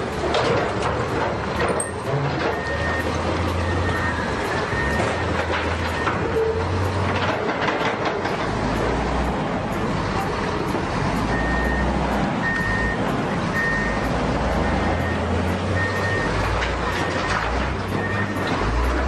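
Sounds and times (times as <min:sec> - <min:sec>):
diesel engines of heavy machines: 0:00.0 - 0:19.0
backup alarm beeping: 0:01.6 - 0:07.0, 0:09.7 - 0:19.0.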